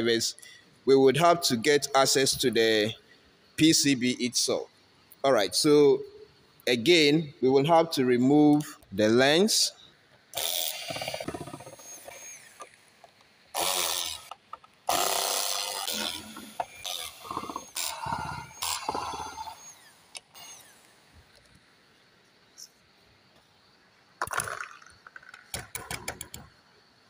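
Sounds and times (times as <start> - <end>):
electric screwdriver whirring: 10.4 - 12.7, 13.6 - 20.8.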